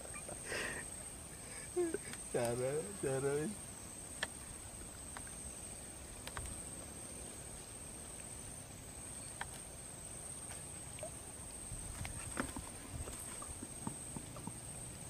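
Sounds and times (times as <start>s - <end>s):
insects high-pitched drone: 0.0s - 15.0s
faint clicks: 6.2s - 6.6s, 9.3s - 9.7s.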